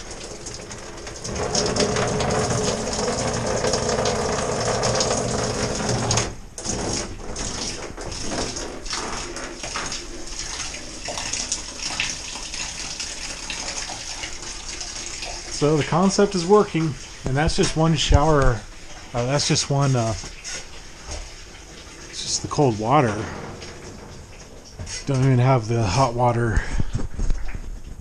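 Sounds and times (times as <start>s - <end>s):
shower water splashing: 0.0s - 28.0s
water drips: 0.0s - 28.0s.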